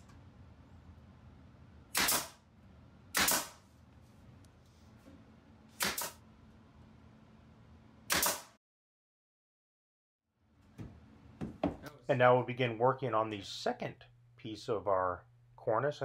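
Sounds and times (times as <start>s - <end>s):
nail gun shots into wood: 1.9s - 2.4s, 3.1s - 3.6s, 5.8s - 6.2s, 8.1s - 8.6s.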